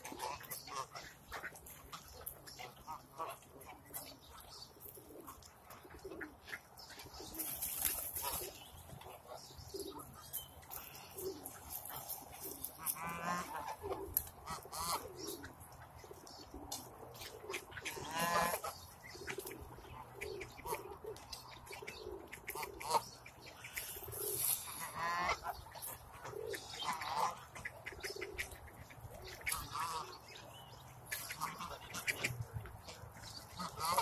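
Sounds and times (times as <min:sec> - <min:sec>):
geese honking: 0:12.7 - 0:15.4, 0:17.8 - 0:18.7, 0:23.7 - 0:25.6, 0:29.4 - 0:30.2, 0:33.5 - 0:34.0.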